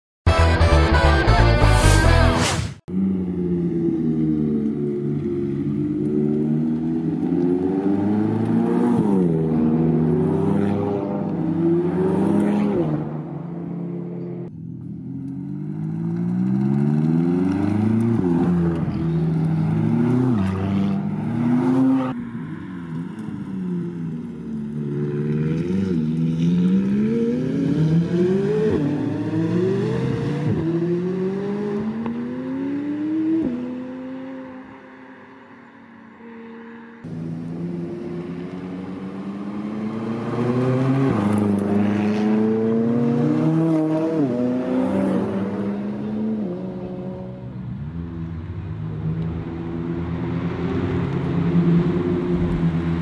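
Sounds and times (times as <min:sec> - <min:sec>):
sports car accelerating hard: 0:15.1 - 0:34.9, 0:36.2 - 0:53.0.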